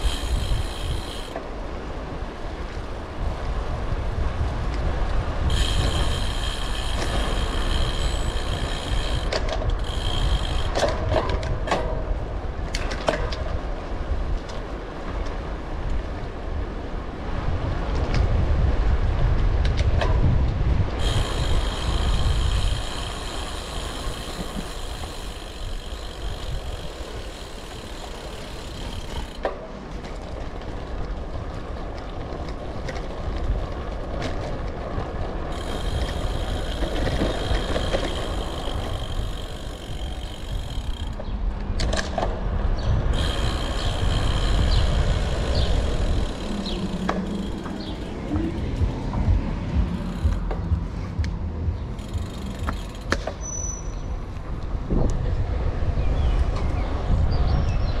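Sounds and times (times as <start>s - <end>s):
high whirring: 0.0s - 1.4s, 5.4s - 11.2s, 35.6s - 41.3s, 42.8s - 53.4s
wind rushing over microphone: 0.0s - 58.0s.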